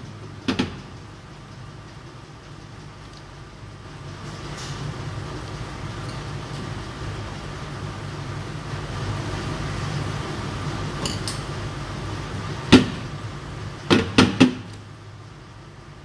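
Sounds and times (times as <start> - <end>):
steady low hum: 0.0 - 16.0
sharp knocks: 13.9 - 14.7.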